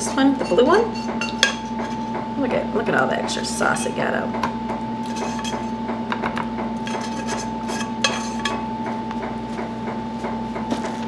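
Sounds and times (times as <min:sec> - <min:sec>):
steady hum: 0:00.0 - 0:11.0
spatula scraping a pan: 0:05.0 - 0:05.8, 0:06.8 - 0:08.6.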